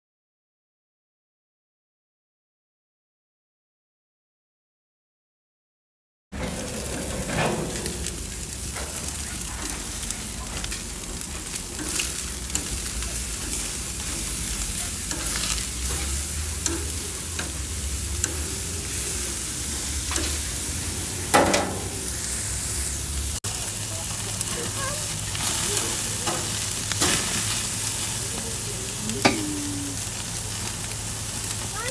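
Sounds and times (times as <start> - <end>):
steaks sizzling on grill: 6.4 - 31.9
metal tongs clicking on grate: 11.4 - 19.0, 20.1 - 20.4, 21.3 - 22.0, 27.0 - 27.3, 29.2 - 29.5.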